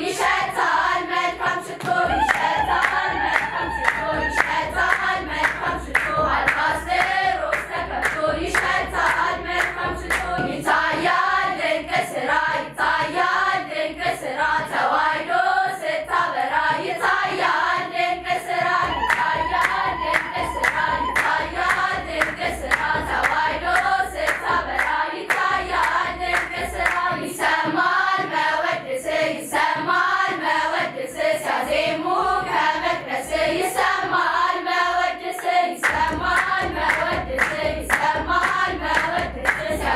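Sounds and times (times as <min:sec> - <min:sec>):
girls' choir singing a hymn: 0:00.0 - 0:39.9
rhythmic hand clapping: 0:00.0 - 0:39.9
low drum beat: 0:02.0 - 0:10.8, 0:18.6 - 0:24.9.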